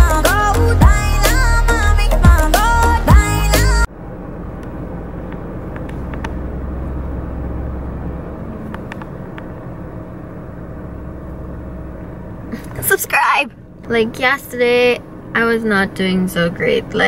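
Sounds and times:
car cabin rumble: 2.3s - 17.0s.

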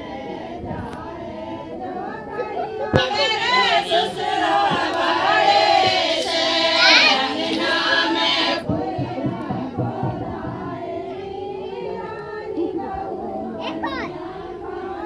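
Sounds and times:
faint voices: 0.0s - 15.0s
women singing in chorus: 0.0s - 15.0s
low knocks: 2.9s - 11.8s.

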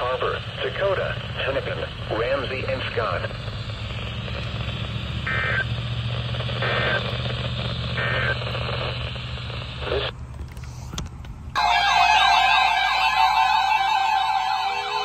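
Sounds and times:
digital data bursts: 0.0s - 10.1s
radio static hiss: 0.0s - 11.0s
wailing siren-like sound: 11.6s - 15.0s.

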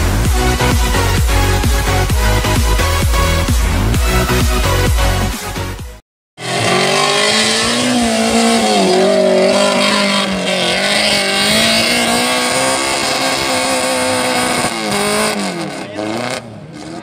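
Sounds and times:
electronic dance music: 0.0s - 6.0s
engine revving hard: 6.4s - 17.0s.

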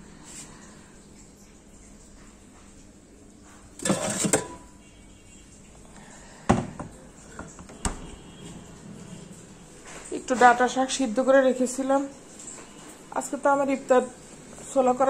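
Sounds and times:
dishes and plastic bags rustling: 3.4s - 4.8s, 6.6s - 11.2s.

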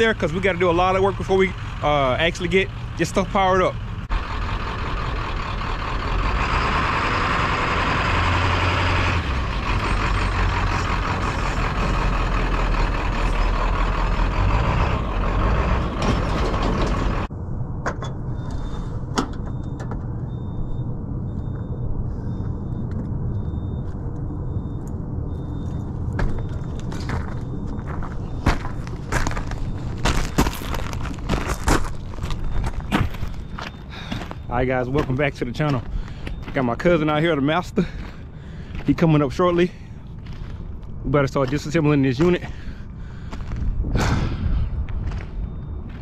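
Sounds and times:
diesel truck engine rumble: 0.0s - 46.0s
faint high beeps: 19.5s - 28.4s, 32.4s - 38.0s, 44.8s - 46.0s.

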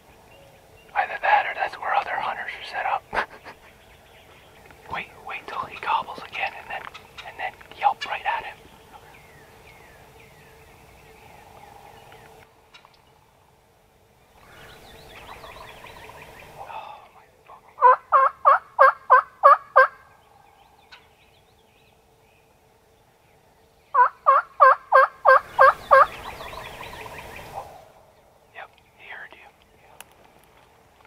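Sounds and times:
soft scratchy sounds: 0.9s - 9.2s, 26.7s - 31.0s
turkey yelping: 17.8s - 20.0s, 24.0s - 26.2s.

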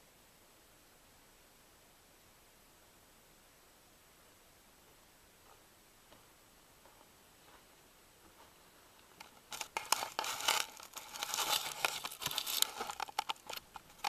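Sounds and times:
dense crackling and rustling: 9.2s - 14.0s.

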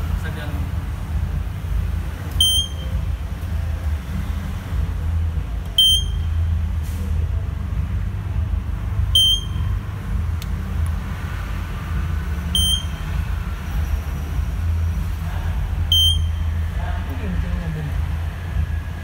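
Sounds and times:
steady low rumble: 0.0s - 19.0s
fire alarm panel buzzer beeps: 2.4s - 2.9s, 5.8s - 6.2s, 9.2s - 9.6s, 12.6s - 13.0s, 15.9s - 16.3s.

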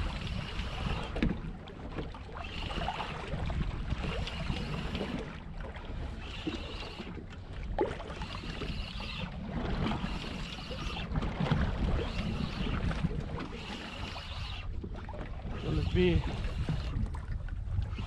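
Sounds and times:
fishing reel whirring: 0.0s - 1.2s, 2.3s - 5.4s, 6.0s - 7.3s, 7.9s - 14.8s, 15.4s - 17.1s
sea noise: 0.0s - 18.0s
wind: 0.0s - 18.0s.

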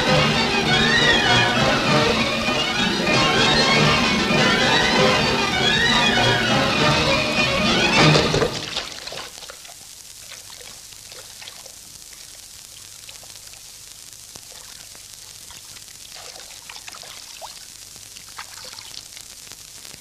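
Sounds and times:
faint steady hiss: 0.0s - 20.0s
water dripping and trickling: 8.5s - 13.8s, 14.4s - 19.2s.

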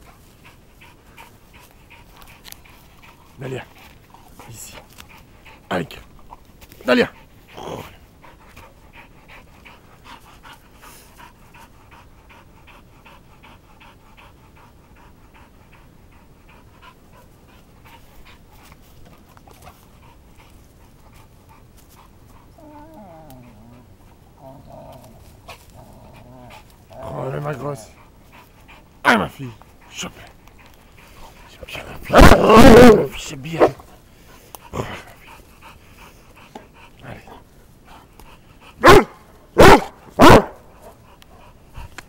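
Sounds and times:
dog panting: 0.0s - 42.0s
dog whining: 22.5s - 25.0s.

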